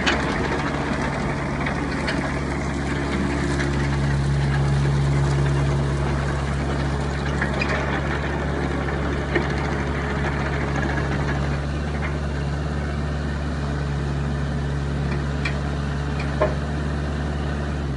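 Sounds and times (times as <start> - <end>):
diesel engine running: 0.0 - 17.9.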